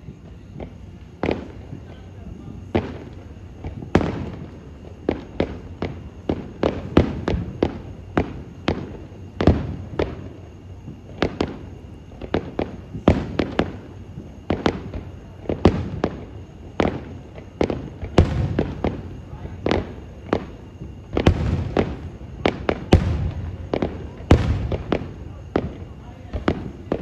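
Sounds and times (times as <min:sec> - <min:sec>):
firework shells bursting: 0:12.3 - 0:27.0.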